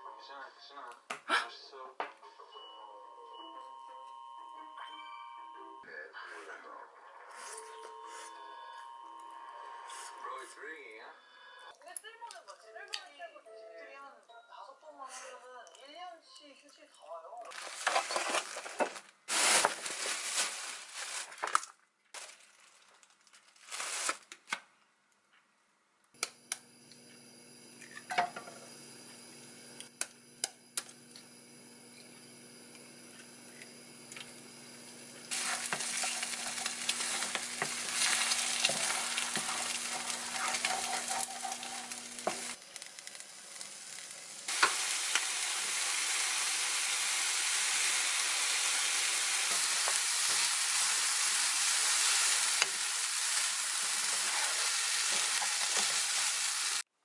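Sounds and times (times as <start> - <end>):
plastic packaging rustling: 17.5 - 24.6, 35.3 - 44.3
food sizzling in frying pan: 30.9 - 56.9.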